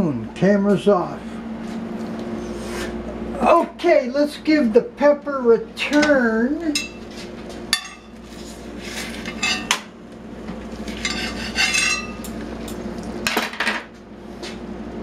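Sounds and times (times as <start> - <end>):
metal tongs clinking on wire rack: 11.0 - 12.3.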